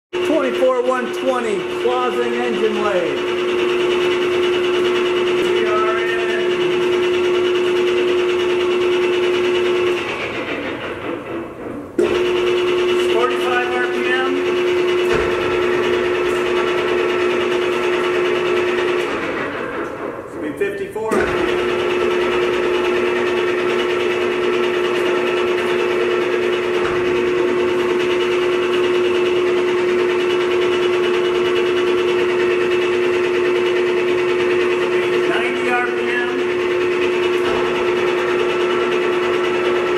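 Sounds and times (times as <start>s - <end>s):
steady mechanical hum: 0.2s - 39.9s.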